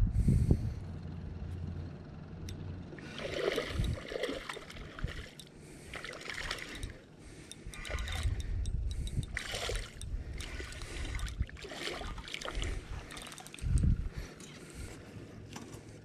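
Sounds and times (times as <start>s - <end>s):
fish splashing at water surface: 3.0s - 8.5s, 9.2s - 13.6s.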